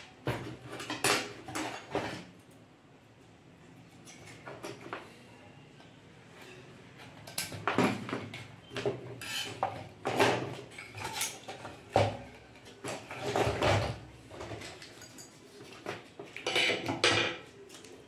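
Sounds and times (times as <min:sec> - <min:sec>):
hard objects knocking and clattering: 0:00.1 - 0:02.4, 0:07.3 - 0:17.5.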